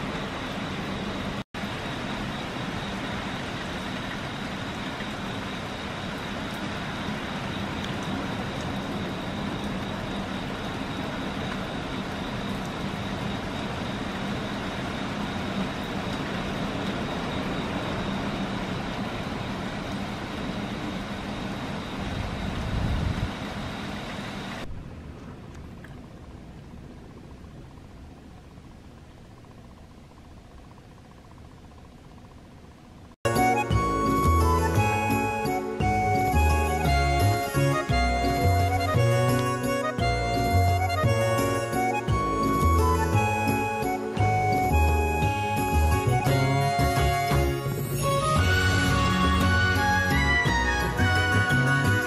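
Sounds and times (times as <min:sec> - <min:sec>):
rain: 0:00.0 - 0:30.2, 0:32.8 - 0:52.0
strong wind blowing: 0:21.9 - 0:23.6.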